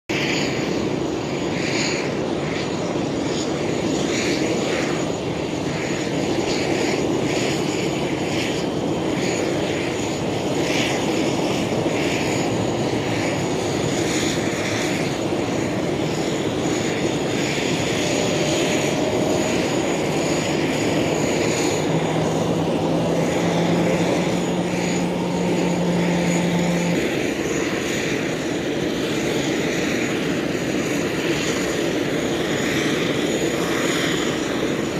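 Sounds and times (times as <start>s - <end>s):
jet engines roaring: 0.1s - 34.9s
low hum: 7.0s - 29.1s.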